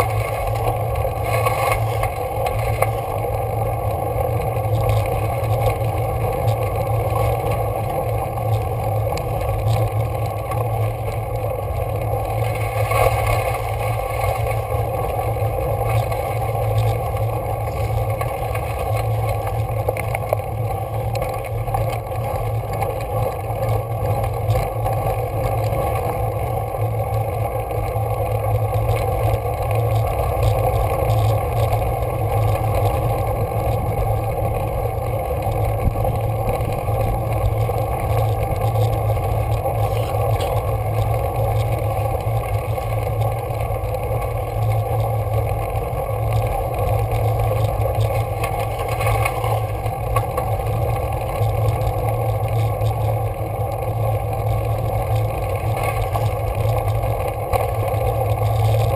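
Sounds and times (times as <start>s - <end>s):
wind and tyre rolling noise: 0.0s - 58.9s.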